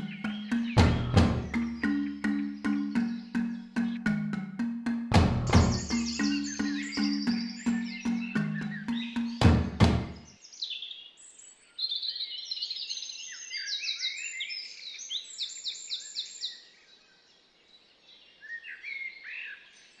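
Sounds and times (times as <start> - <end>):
struck music notes: 0.0 - 10.2
songbirds chirping and trilling: 0.0 - 20.0.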